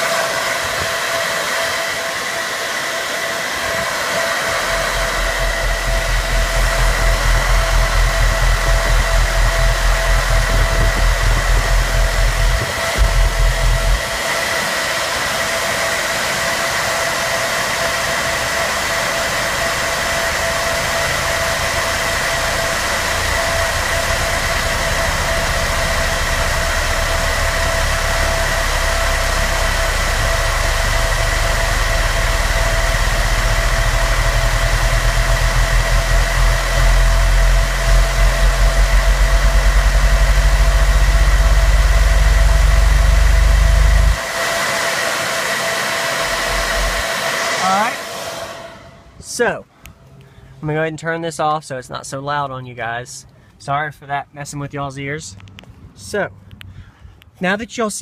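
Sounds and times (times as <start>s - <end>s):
high steady whine: 0.0s - 58.0s
pulsing bass test tone: 4.4s - 14.2s, 18.3s - 44.2s.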